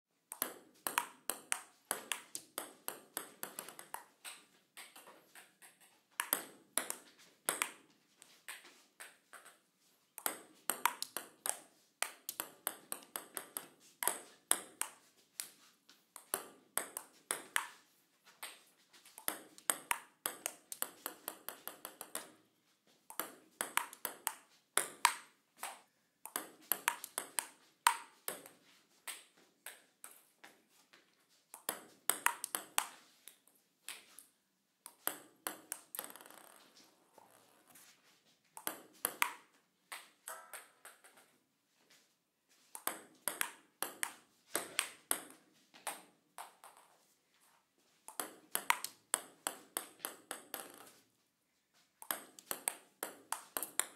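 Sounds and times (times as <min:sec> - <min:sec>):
paddle striking ping pong ball: 0:00.3 - 0:07.8, 0:10.2 - 0:15.0, 0:23.2 - 0:29.2, 0:31.6 - 0:33.0, 0:42.8 - 0:46.0, 0:48.1 - 0:50.9.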